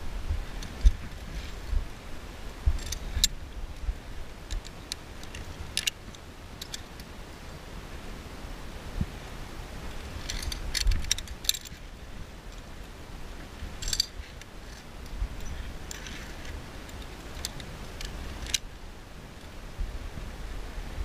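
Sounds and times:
metal carabiners clinking on steel cable: 2.7s - 3.4s, 4.4s - 7.1s, 10.0s - 11.9s, 13.8s - 18.7s.

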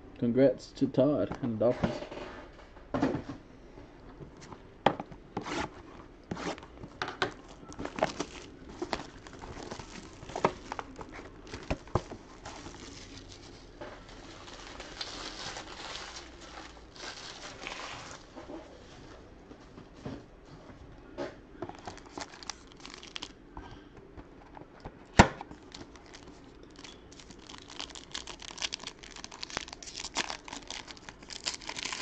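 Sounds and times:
wrapper crinkling: 7.3s - 18.4s, 21.7s - 23.4s, 25.5s - 32.0s
card pack wrappers tearing: 7.4s - 11.8s, 12.4s - 18.2s, 21.8s - 23.4s, 25.5s - 32.0s.

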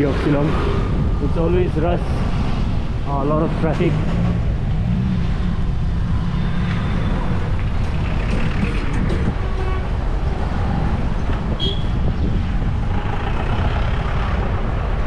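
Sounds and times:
traffic engines and road noise: 0.0s - 15.0s
vehicle horn toot: 11.6s - 11.9s.

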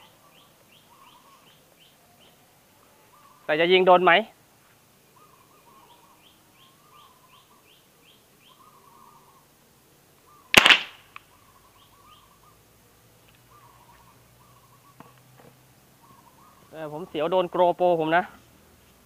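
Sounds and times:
birds chirping: 0.0s - 19.0s
gun shot: 10.5s - 11.0s.

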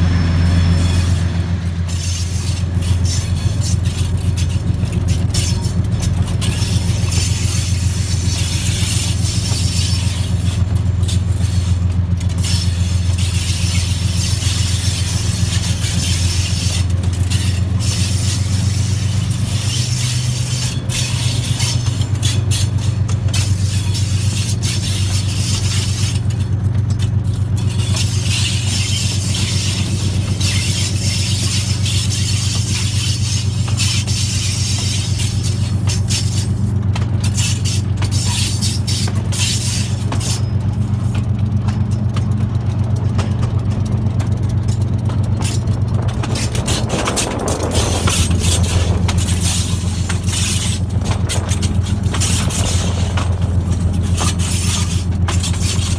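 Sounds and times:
locomotive engine drone: 0.0s - 55.9s
train rattling and clicking: 0.0s - 55.9s.

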